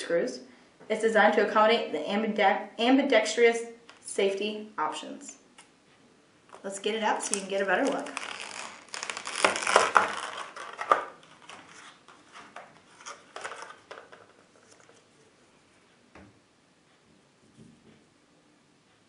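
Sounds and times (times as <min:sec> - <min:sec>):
plastic packaging crackling: 0:06.5 - 0:15.0.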